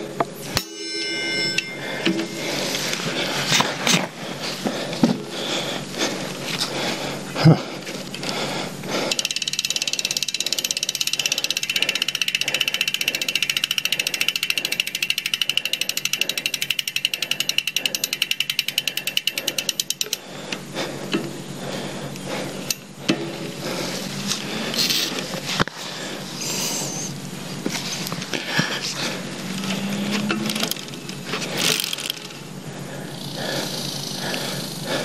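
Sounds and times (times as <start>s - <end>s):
bicycle freehub ratcheting: 8.0s - 21.3s, 29.2s - 35.0s.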